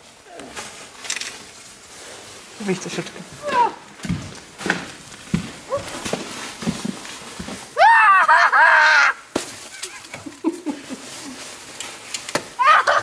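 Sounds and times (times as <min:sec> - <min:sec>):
child screaming: 0:07.8 - 0:09.2, 0:12.6 - 0:13.0.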